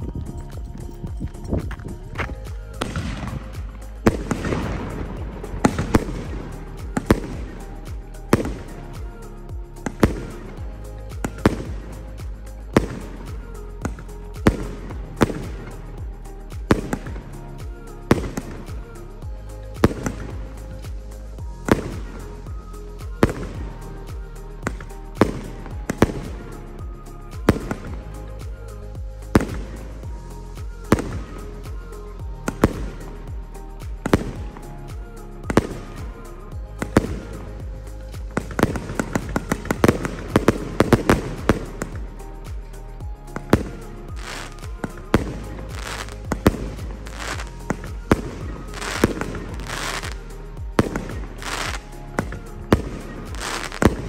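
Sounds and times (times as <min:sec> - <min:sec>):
firework cake shots bursting: 0:43.4 - 0:54.0.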